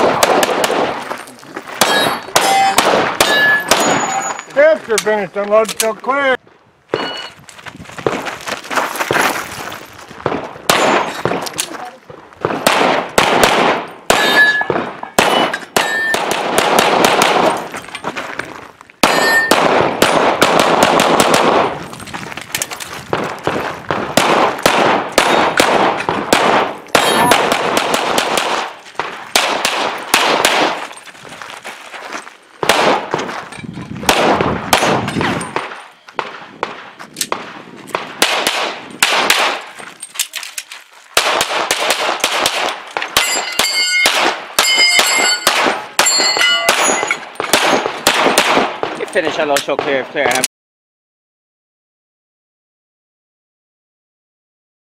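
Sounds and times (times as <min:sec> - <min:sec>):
rapid pistol fire: 0:00.0 - 0:01.0, 0:01.8 - 0:04.1, 0:12.5 - 0:15.5, 0:16.2 - 0:17.6, 0:19.0 - 0:21.8, 0:23.9 - 0:30.8, 0:32.6 - 0:33.1, 0:34.1 - 0:39.6, 0:41.2 - 0:43.4, 0:46.7 - 0:49.0
steel targets clanging: 0:01.8 - 0:05.2, 0:14.1 - 0:16.2, 0:19.1 - 0:19.6, 0:43.2 - 0:47.4.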